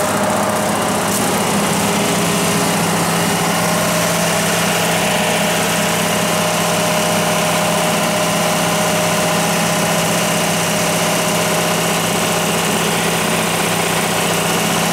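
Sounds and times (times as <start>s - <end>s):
diesel generator humming: 0.0s - 14.9s.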